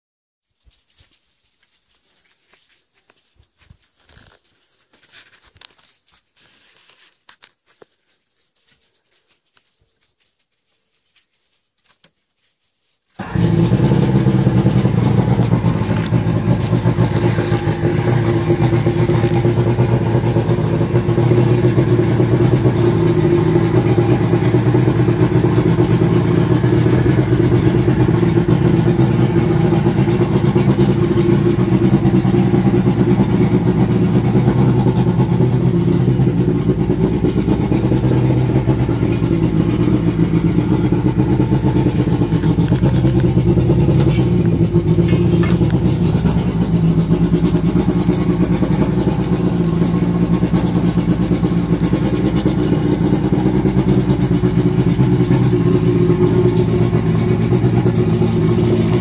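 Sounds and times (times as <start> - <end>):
outboard motor starting and running: 13.2 - 59.0.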